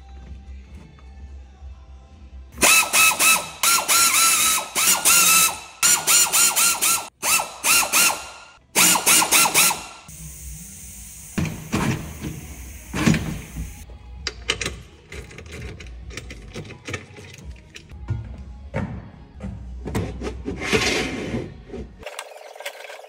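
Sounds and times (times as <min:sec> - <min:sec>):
pneumatic air wrench rattling: 0:02.6 - 0:10.3.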